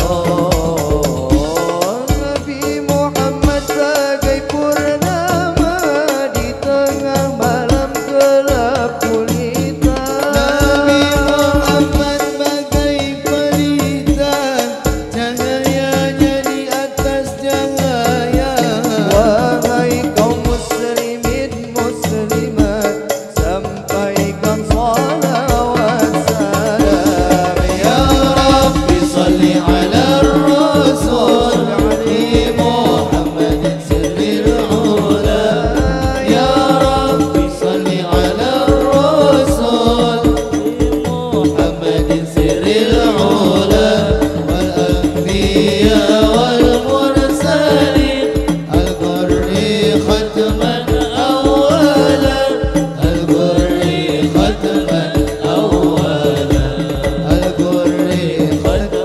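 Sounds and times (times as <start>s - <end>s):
frame drums beating: 0.0s - 59.0s
group singing through sound system: 0.0s - 59.0s.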